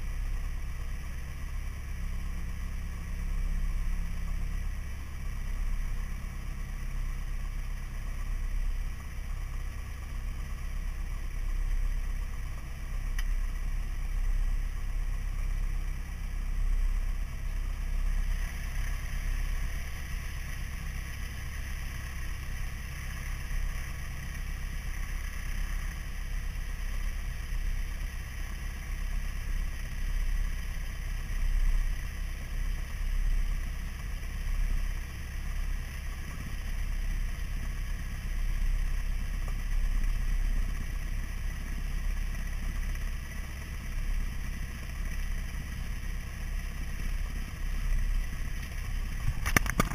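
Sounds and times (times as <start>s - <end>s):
light airplane engine idling: 0.0s - 49.9s
camera buffeting: 49.2s - 49.9s.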